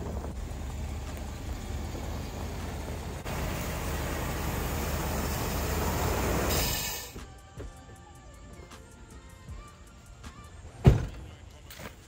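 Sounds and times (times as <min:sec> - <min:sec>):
engine idling with misfire: 0:00.0 - 0:07.2.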